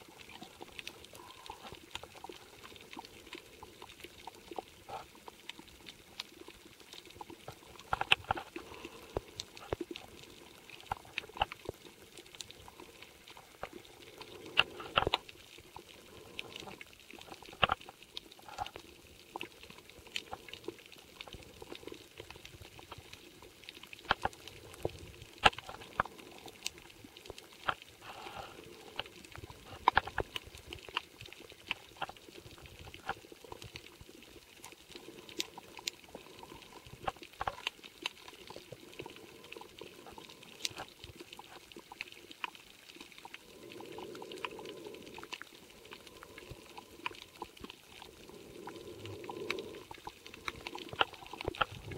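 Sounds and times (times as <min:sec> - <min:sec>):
underwater crackle of clicks: 0:00.0 - 0:51.9
faint hiss: 0:19.4 - 0:33.8.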